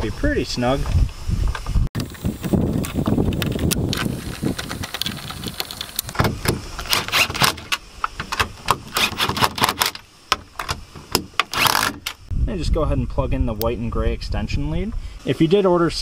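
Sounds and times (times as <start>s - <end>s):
cordless driver bursts: 6.9s - 7.6s, 8.9s - 9.9s, 11.5s - 12.2s.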